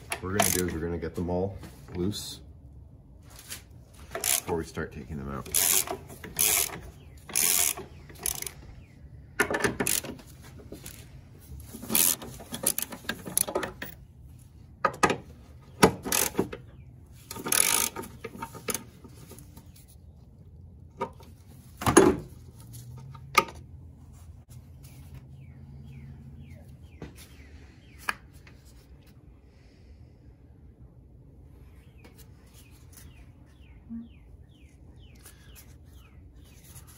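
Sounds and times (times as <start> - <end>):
socket ratchet clicking: 5.5 - 8.6.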